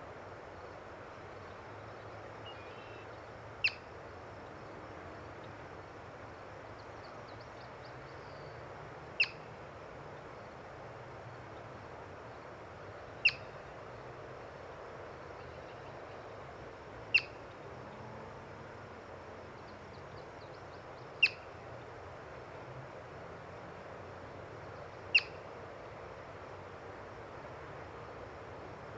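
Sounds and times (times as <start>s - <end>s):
marmot alarm chirps: 13.2s - 13.5s, 21.2s - 21.5s, 25.1s - 25.4s.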